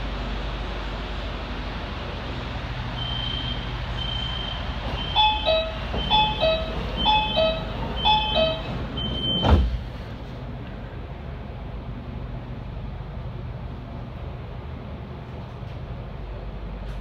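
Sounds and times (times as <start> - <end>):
high warning beeps: 3.0 - 9.6
train doors thudding shut: 3.5 - 10.2.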